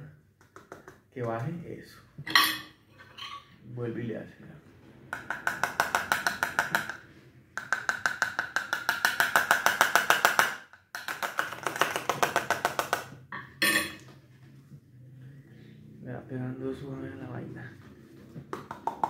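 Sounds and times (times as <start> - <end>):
metal spoon tapping plastic funnel: 7.6 - 13.0.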